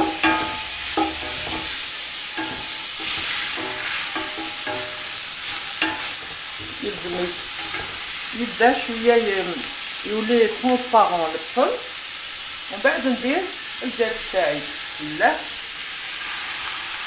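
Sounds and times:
spatula scraping and knocking pot: 0.0 - 8.2
onions sizzling in a pot: 0.0 - 17.0.

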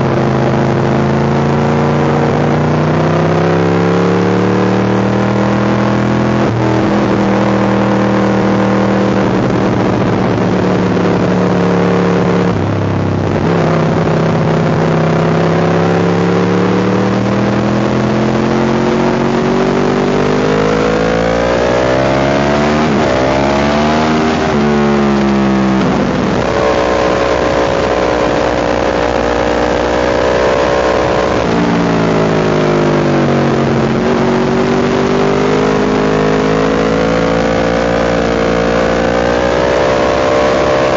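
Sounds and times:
motorcycle engine revving: 0.0 - 40.9
wind rushing over microphone: 6.0 - 16.0.

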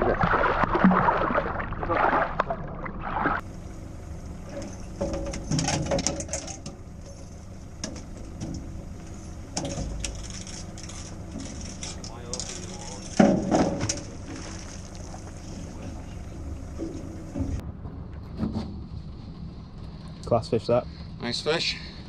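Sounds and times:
fish thrashing and splashing: 0.0 - 3.4, 13.8 - 16.2
low steady hum: 0.0 - 22.0.

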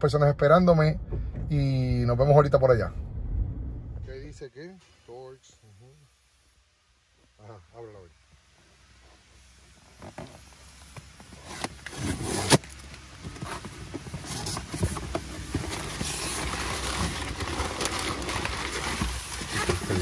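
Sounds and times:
vehicle running: 0.6 - 4.4.

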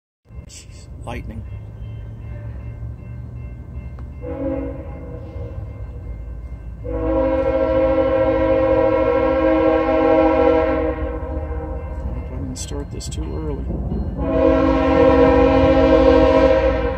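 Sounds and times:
locomotive air horn blasts: 4.2 - 5.8, 6.8 - 12.0, 14.2 - 16.9.

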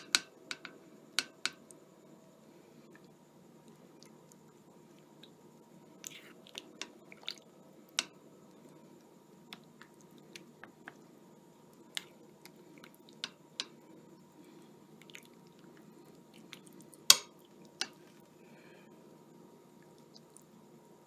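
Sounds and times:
wet food squishes: 3.0 - 7.6, 14.3 - 18.3.

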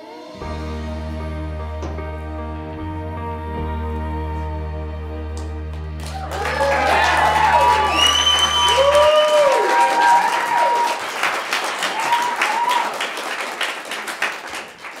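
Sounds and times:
audience clapping: 5.4 - 15.0
audience cheering and whooping: 6.0 - 13.4
whistle: 7.6 - 9.8.

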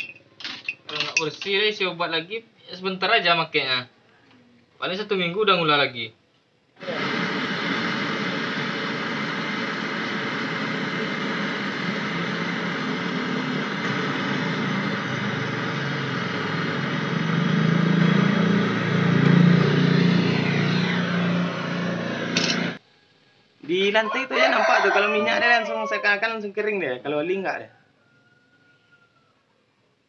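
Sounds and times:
gas torch hissing: 6.8 - 22.8.

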